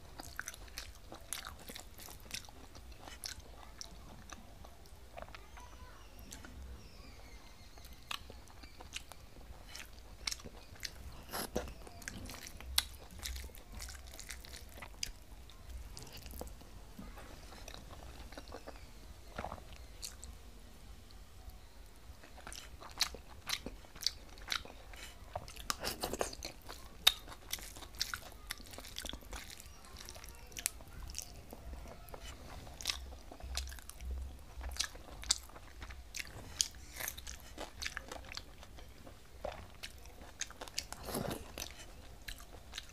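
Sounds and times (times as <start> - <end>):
person chewing with wet smacks: 0.0 - 6.8, 7.8 - 20.3, 22.2 - 42.9
faint low hum: 0.0 - 42.9
small crunches: 39.4 - 42.9.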